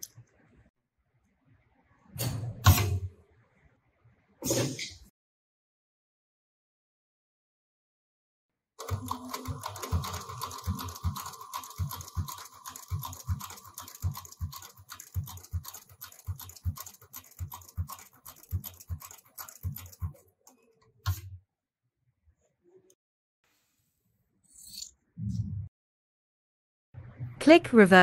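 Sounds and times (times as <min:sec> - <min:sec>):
sewing machine needle knocking: 0:08.8 - 0:20.2.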